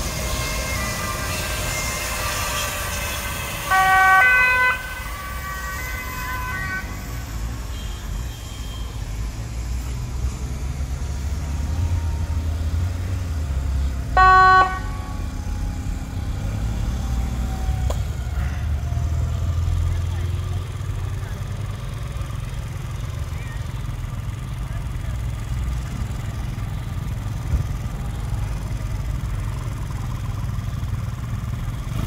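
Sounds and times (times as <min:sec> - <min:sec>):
police car two-tone siren: 0:00.0 - 0:19.8.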